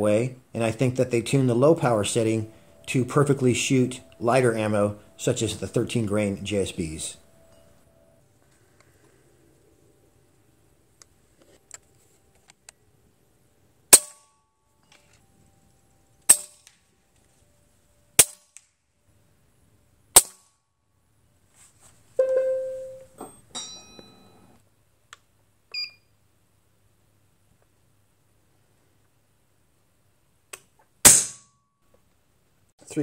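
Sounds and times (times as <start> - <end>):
metallic ring: 22.2 - 24.6.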